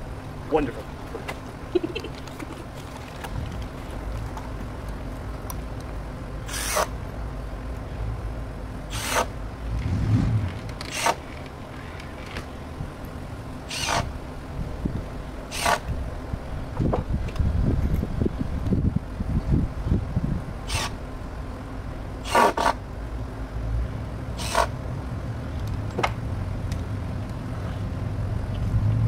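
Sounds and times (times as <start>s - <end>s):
low outdoor rumble: 0.0s - 29.0s
short zipping rasps: 6.5s - 7.0s, 8.9s - 9.3s, 10.3s - 11.4s, 13.7s - 14.1s, 15.5s - 15.8s, 20.7s - 21.0s, 22.2s - 22.8s, 24.4s - 24.7s.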